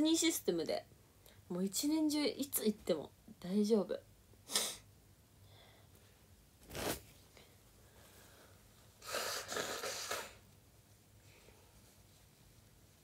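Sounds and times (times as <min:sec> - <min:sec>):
woman blowing her nose: 0:04.5 - 0:04.8, 0:09.0 - 0:10.4
sharp nasal noise: 0:09.0 - 0:10.4.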